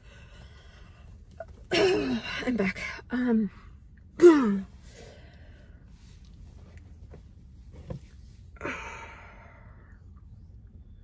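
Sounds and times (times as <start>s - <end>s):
woman sighing: 8.6s - 9.6s.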